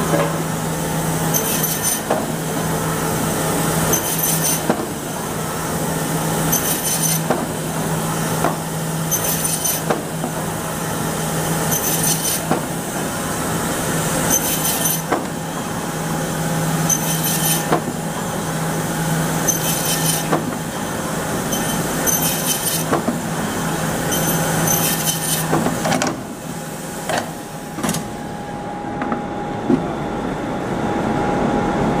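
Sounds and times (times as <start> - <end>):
sharp mechanical noise: 1.2 - 2.2, 3.8 - 5.0, 6.4 - 7.3, 9.0 - 10.1, 11.6 - 12.6, 16.7 - 17.9, 19.4 - 20.6, 21.4 - 23.1, 24.0 - 26.2.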